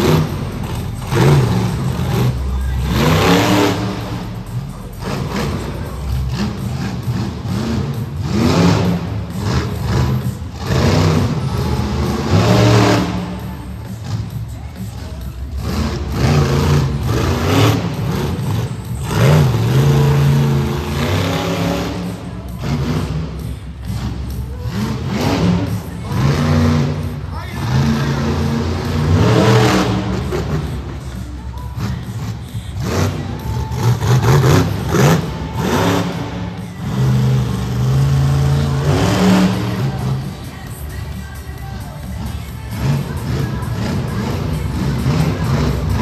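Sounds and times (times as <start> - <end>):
truck engine revving hard: 0.0 - 40.8, 42.7 - 46.0.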